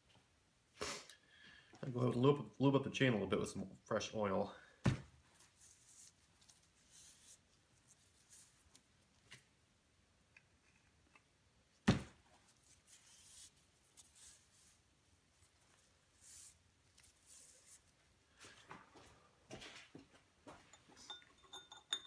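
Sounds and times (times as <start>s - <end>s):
roller chain clinking: 20.7s - 22.0s.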